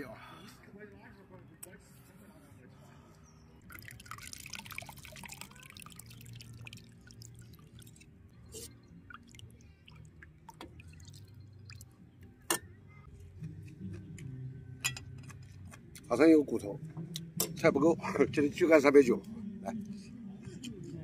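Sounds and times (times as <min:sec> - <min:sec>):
liquid trickling into a cup: 0:03.6 - 0:11.9.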